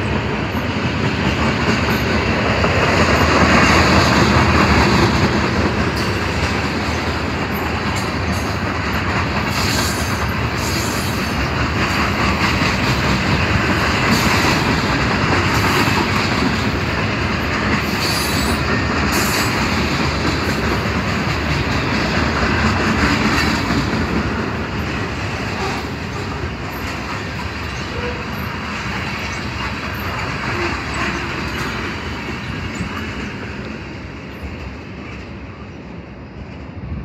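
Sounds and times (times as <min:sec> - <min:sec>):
train wheels clattering on rail: 0:00.0 - 0:37.0.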